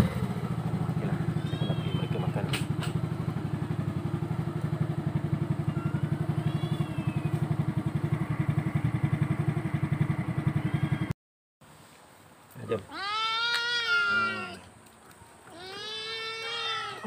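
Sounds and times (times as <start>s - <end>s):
motorcycle engine idling: 0.0s - 11.1s
faint high chirps: 1.3s - 2.3s, 5.6s - 7.6s.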